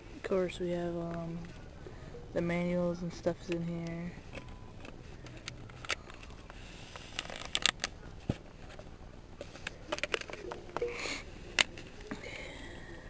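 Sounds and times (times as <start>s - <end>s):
packaging clicks and taps: 9.6s - 10.9s.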